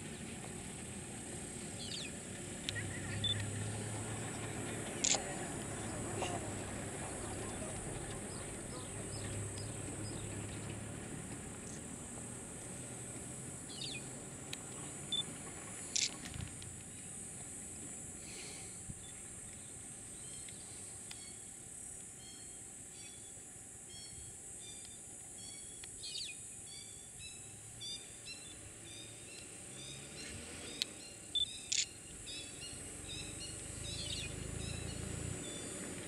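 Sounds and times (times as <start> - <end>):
bird chirps: 2.7 - 3.5, 13.7 - 14.1, 19.0 - 21.5, 22.2 - 35.8
sharp clicks: 31.7 - 32.0.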